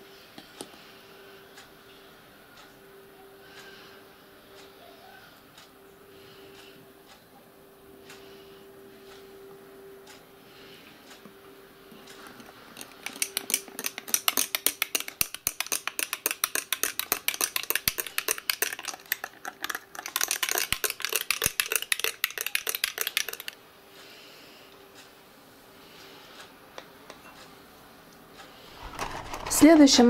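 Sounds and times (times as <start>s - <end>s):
teaspoon clinking against glass: 13.1s - 23.5s.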